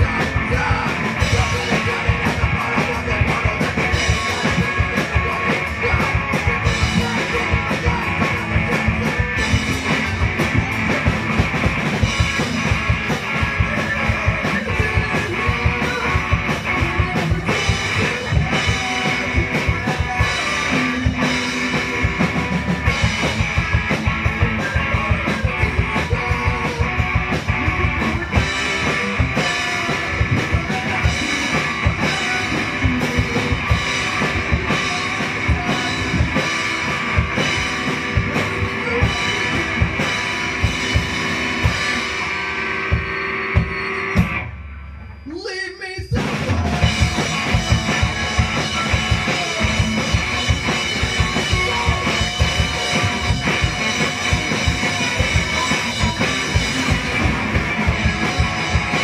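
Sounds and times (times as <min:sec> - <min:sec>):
rock band playing: 0:00.0 - 0:59.0.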